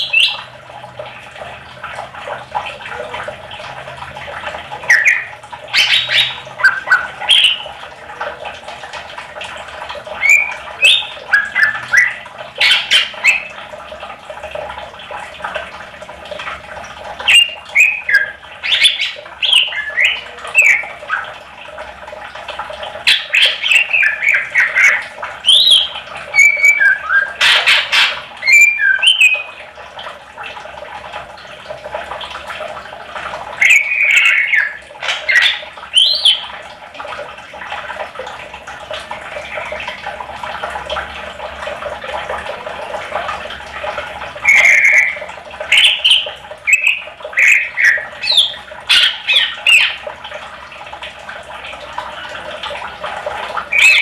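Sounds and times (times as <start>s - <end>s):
bird chirping and whistling: 0.0s - 0.4s, 4.9s - 7.6s, 10.2s - 13.5s, 17.3s - 21.2s, 23.1s - 29.5s, 33.6s - 36.4s, 44.4s - 50.0s, 53.7s - 54.0s.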